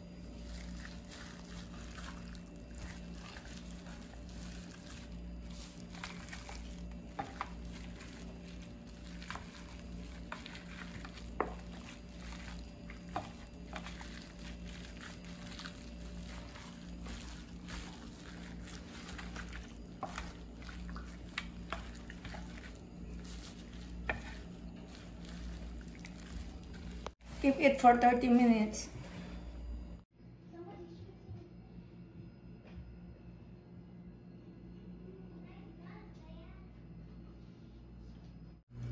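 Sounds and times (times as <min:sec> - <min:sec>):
plastic glove crinkling: 0:00.0 - 0:28.4
steady low hum: 0:00.0 - 0:38.9
wet squishing of raw chicken: 0:00.2 - 0:27.3.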